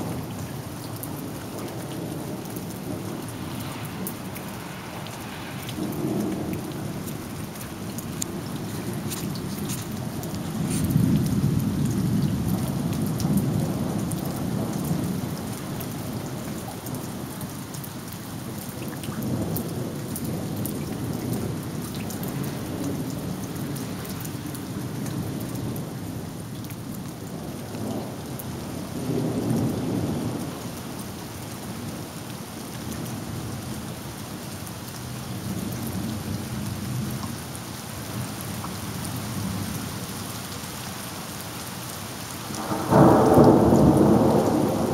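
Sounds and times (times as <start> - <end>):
rolling thunder: 0.0 - 16.3, 42.4 - 44.9
rain drops: 0.0 - 44.9.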